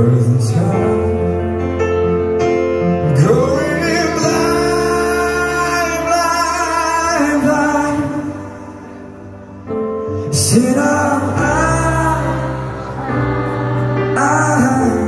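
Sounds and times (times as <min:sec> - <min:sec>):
piano accompaniment: 0:00.0 - 0:15.0
man singing long notes: 0:10.1 - 0:15.0.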